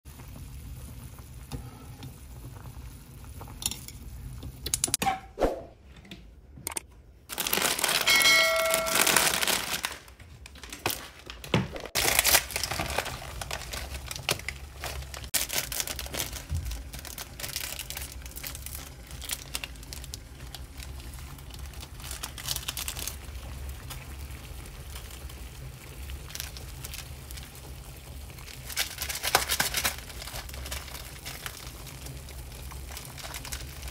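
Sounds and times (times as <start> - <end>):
water boiling in a pot: 0.0 - 4.9, 12.0 - 33.9.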